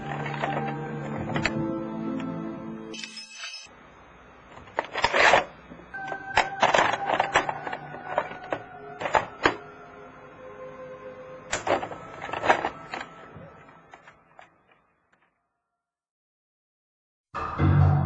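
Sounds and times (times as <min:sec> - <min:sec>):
held ringing tones: 0:02.9 - 0:03.8, 0:05.9 - 0:09.4.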